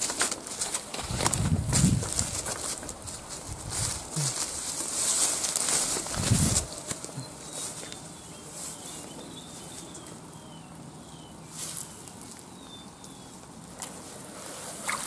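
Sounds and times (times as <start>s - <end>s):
rustling of grass and handling: 0.0s - 15.0s
small bird chirping: 6.5s - 13.5s.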